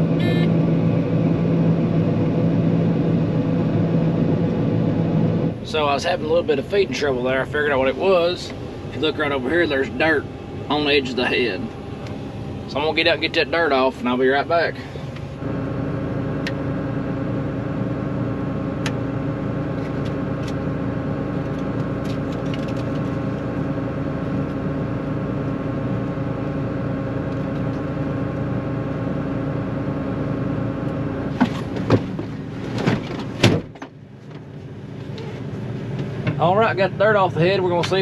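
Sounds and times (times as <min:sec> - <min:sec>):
combine engine running: 0:00.0 - 0:38.0
cab door knocks and clunk: 0:31.3 - 0:34.4.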